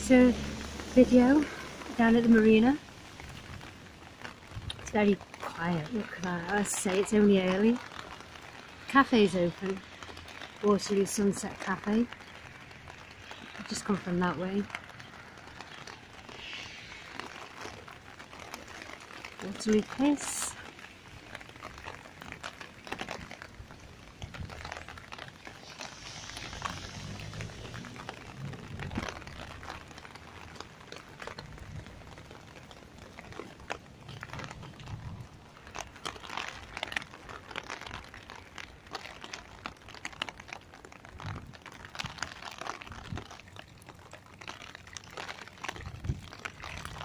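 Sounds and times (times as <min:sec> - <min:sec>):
wind rumbling on microphone: 0:00.0 - 0:10.6, 0:11.2 - 0:47.0
rain tapping on an umbrella: 0:00.0 - 0:47.0.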